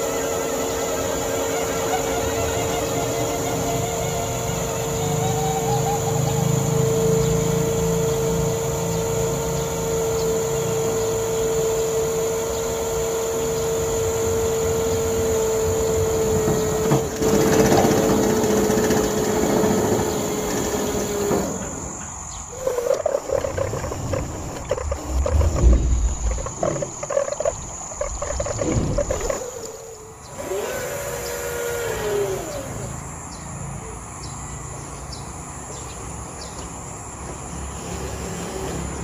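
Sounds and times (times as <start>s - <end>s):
electric motor whining: 0.0s - 39.0s.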